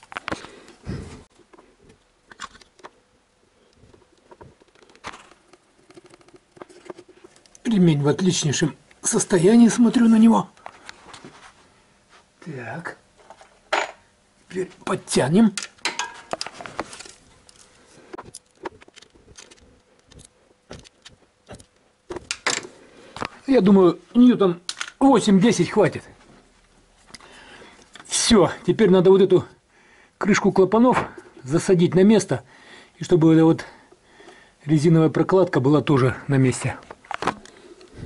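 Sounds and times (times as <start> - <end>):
faint clicks and rustles of handling: 0.0 - 7.9, 10.5 - 12.4, 15.6 - 23.8, 25.9 - 28.3.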